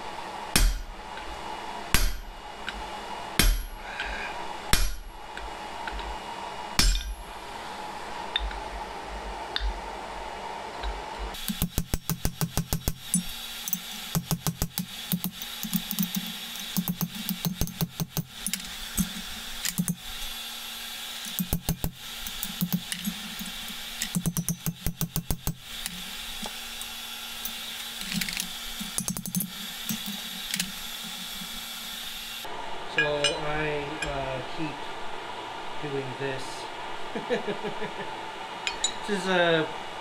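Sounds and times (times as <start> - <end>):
steady hum: 0.0 - 40.0
hammer striking punch on anvil: 0.5 - 0.9, 1.9 - 2.3, 3.4 - 3.8, 4.7 - 5.1, 6.8 - 7.3, 11.4 - 20.0, 21.3 - 25.6.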